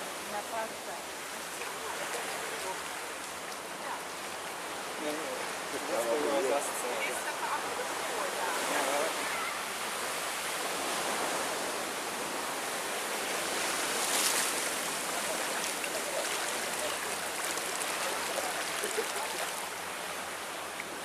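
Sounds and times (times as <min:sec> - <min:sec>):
sea waves washing on shore: 0:00.0 - 0:21.0.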